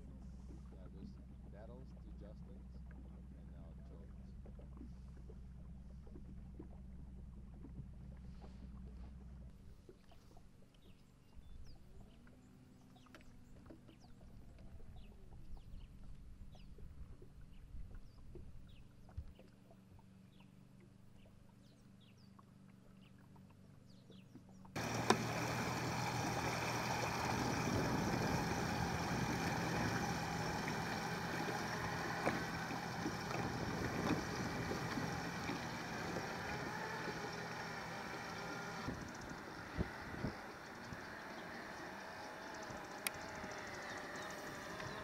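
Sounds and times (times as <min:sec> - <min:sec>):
low hum: 0:00.0 - 0:45.0
outboard motors running at speed: 0:00.0 - 0:45.0
water rushing past hull: 0:24.8 - 0:45.0.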